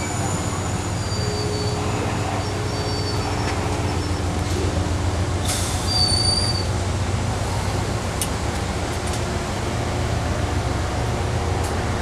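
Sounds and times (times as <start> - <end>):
high wheel squeal: 0.0 - 4.2, 5.6 - 6.8
train wheels rumbling on rails: 0.0 - 12.0.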